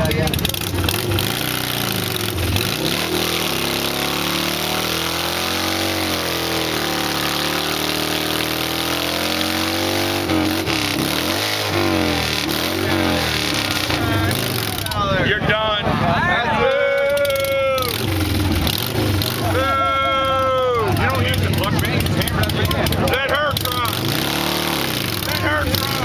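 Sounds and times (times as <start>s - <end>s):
motorcycle engine revving: 0.0s - 16.5s, 17.1s - 26.0s.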